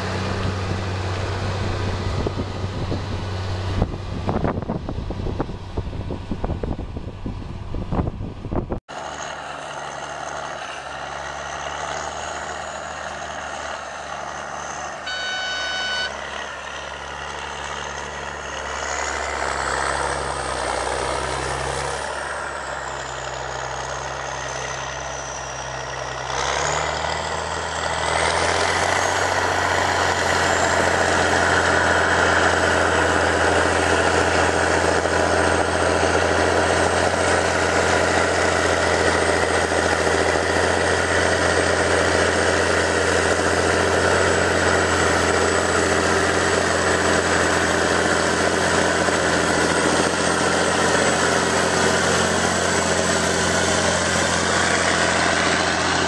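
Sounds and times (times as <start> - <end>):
tractor diesel engine running: 0.0 - 56.0
brief beep: 15.0 - 16.2.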